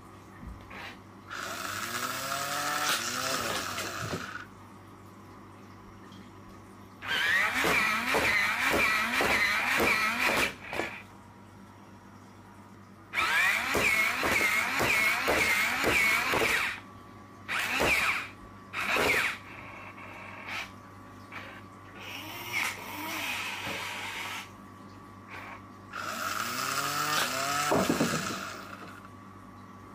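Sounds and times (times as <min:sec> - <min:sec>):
toy robot motors whirring: 0:00.7 - 0:04.5, 0:07.0 - 0:11.0, 0:13.2 - 0:16.8, 0:17.5 - 0:20.7, 0:21.3 - 0:24.5, 0:25.3 - 0:29.0.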